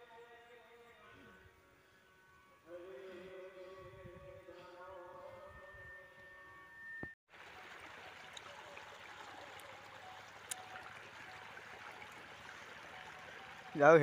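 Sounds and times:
faint music with high tone: 0:00.0 - 0:07.1.

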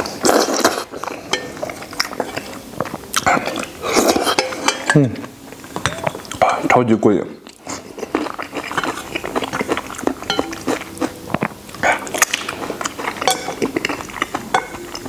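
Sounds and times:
wet chewing and smacking: 0:07.5 - 0:15.0
chopsticks clinking on a plate: 0:08.6 - 0:11.2, 0:11.8 - 0:15.0.

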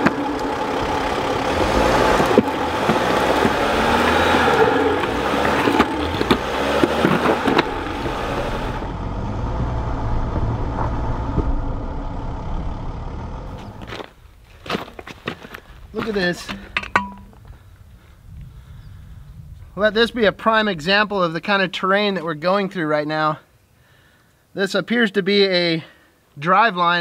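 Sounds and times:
tyres crunching over rocks: 0:00.0 - 0:08.9, 0:13.5 - 0:17.6
van engine running: 0:00.0 - 0:14.2.

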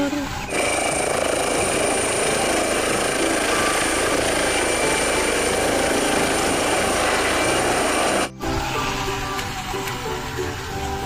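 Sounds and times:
helicopter rotor and turbine: 0:00.5 - 0:08.3
high-pitched turbine whine: 0:00.5 - 0:08.4.

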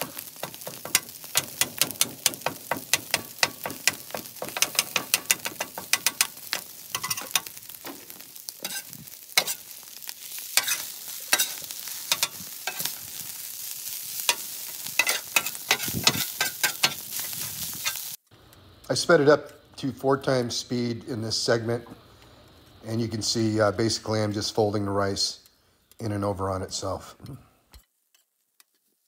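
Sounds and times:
spatulas clacking and scraping: 0:00.0 - 0:07.6, 0:08.6 - 0:09.6, 0:10.6 - 0:13.0, 0:15.0 - 0:17.0
food sizzling on griddle: 0:00.0 - 0:27.0.

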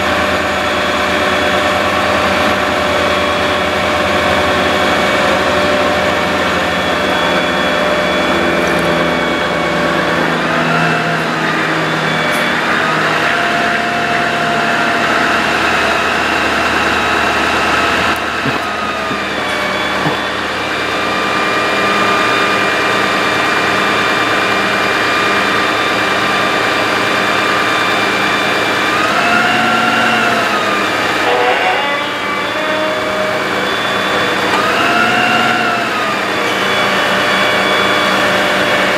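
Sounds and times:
truck engine and hydraulic pump hum: 0:00.0 - 0:38.9.

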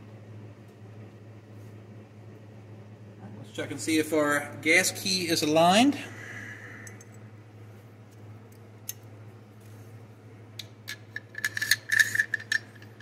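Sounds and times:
metal bolt clicking and scraping: 0:10.9 - 0:13.0.

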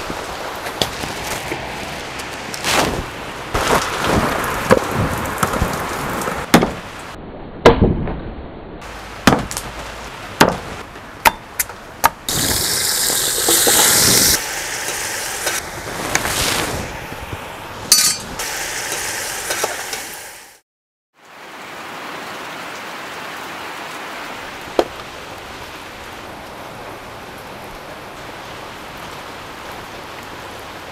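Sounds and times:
wood fire crackling: 0:00.0 - 0:07.2, 0:08.8 - 0:20.3
sizzling hiss: 0:12.3 - 0:20.6.

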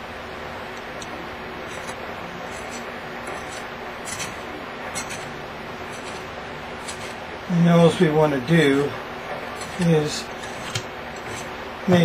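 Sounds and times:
file scraping copper wire: 0:01.6 - 0:08.2, 0:09.4 - 0:12.0.

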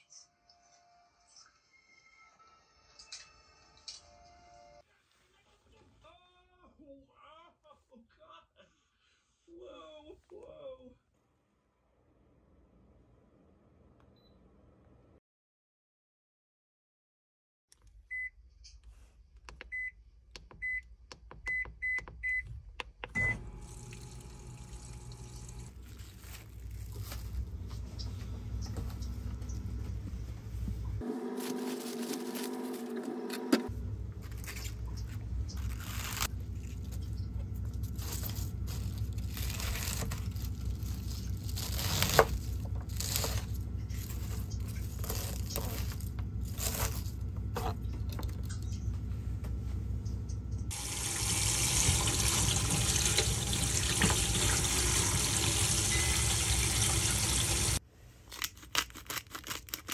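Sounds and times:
appliance beeping: 0:19.6 - 0:25.8, 0:27.2 - 0:57.8
steady low hum: 0:23.1 - 0:31.2, 0:32.9 - 0:51.4.

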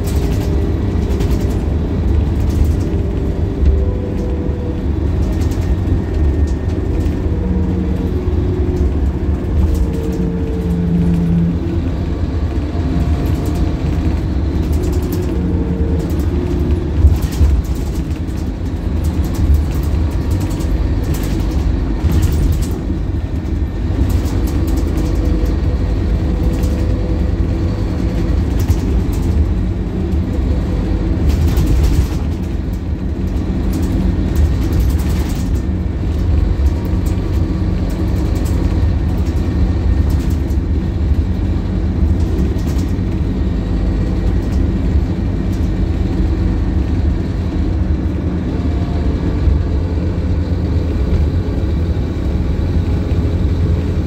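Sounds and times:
diesel bus engine rumbling: 0:00.0 - 0:54.0
interior clicks and rattles: 0:00.0 - 0:54.0
road noise: 0:00.0 - 0:54.0.

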